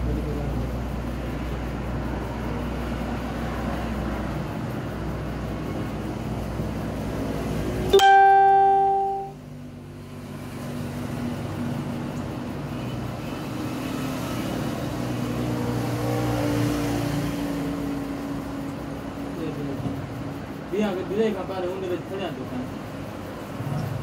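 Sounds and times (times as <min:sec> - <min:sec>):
loud ringing note: 0:07.9 - 0:09.4.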